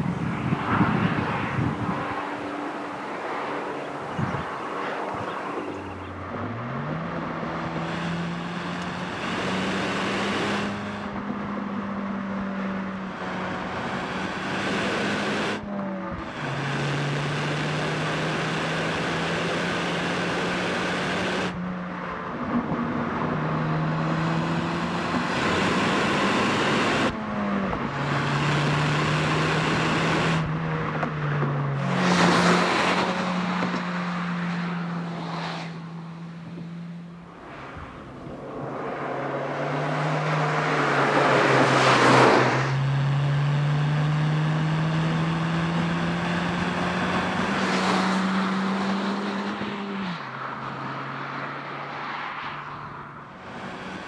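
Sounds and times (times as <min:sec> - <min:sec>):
car engine running: 0:01.5 - 0:21.7.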